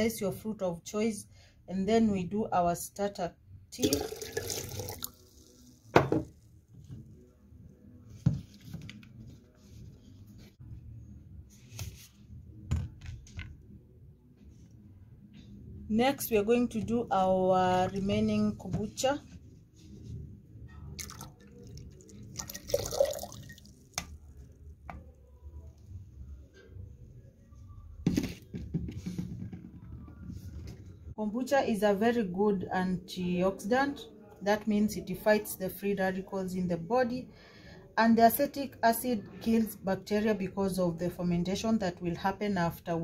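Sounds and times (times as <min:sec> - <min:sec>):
tea pouring into glass: 0:03.8 - 0:06.0, 0:21.0 - 0:24.2.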